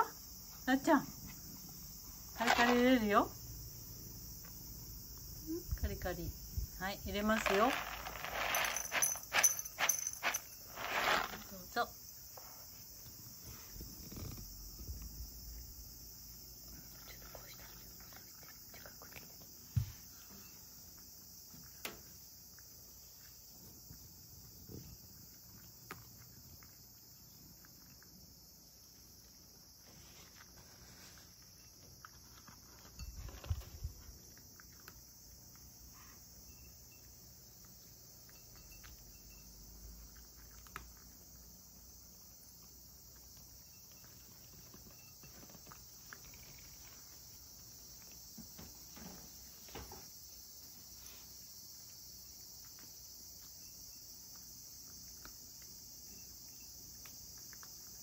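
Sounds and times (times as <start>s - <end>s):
cat crunching dry kibble: 7.4s - 11.5s.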